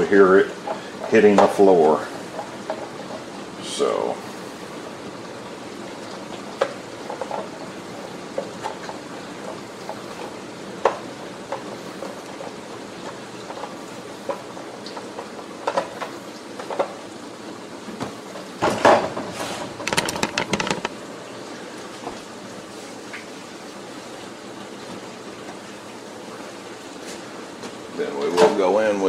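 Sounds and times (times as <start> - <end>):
plastic clatter on countertop: 17.9 - 21.0
plastic knocks and scrapes: 17.9 - 21.0.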